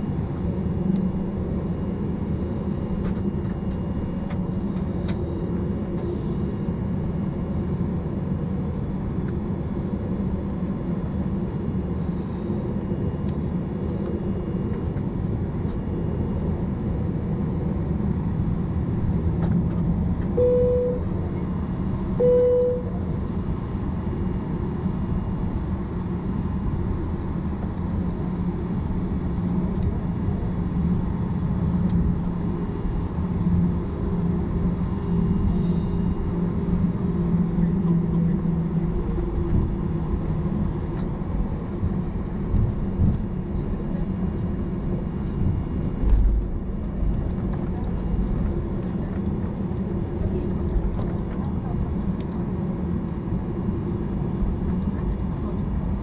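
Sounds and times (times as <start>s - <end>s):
jet engines humming: 0.0s - 56.0s
short cabin tones: 20.4s - 21.1s, 22.2s - 23.0s.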